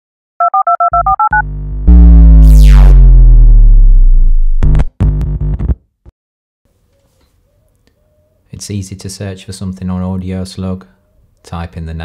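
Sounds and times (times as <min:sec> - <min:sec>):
deep bass tone with falling sweep: 0:01.4 - 0:04.9
short synth stabs: 0:01.4 - 0:04.9.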